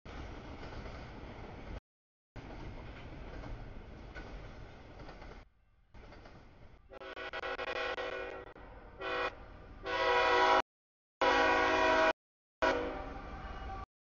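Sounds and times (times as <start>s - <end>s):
locomotive air horn blasts: 6.9s - 10.6s, 11.2s - 13.9s.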